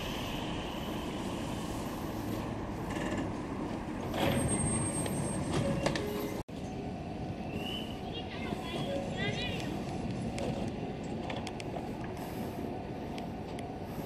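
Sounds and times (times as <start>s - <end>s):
electric train humming: 5.9s - 14.0s.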